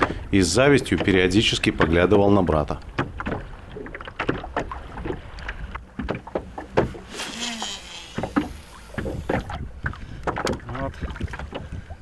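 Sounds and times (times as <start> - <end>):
water slapping against hull: 0.0 - 12.0.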